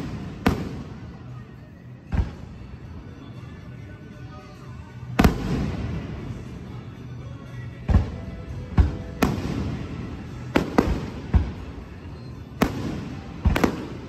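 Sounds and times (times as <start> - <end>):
fireworks shells booming: 0.0 - 1.3, 7.8 - 14.0.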